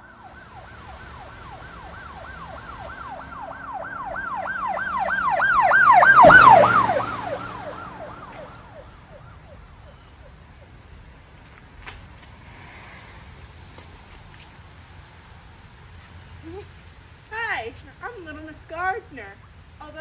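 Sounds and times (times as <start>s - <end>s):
siren pitch sweeps: 0.0s - 10.3s.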